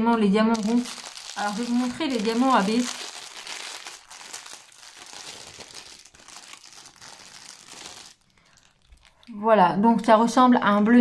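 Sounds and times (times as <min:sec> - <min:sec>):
plastic packaging crinkling: 0:00.0 - 0:09.4.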